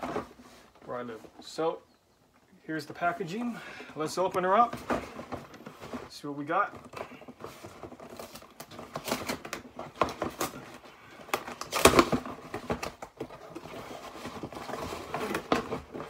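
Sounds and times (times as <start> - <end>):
cardboard crackling: 2.8 - 16.0
tape ripping: 11.3 - 13.1.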